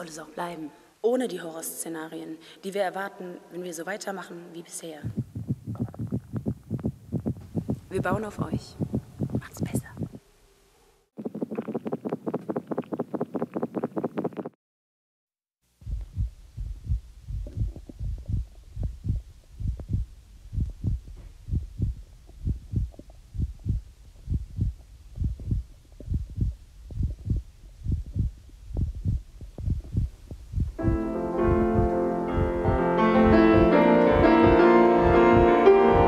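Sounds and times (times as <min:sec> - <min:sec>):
heartbeat thumps: 0:05.0 - 0:10.2, 0:15.8 - 0:36.0.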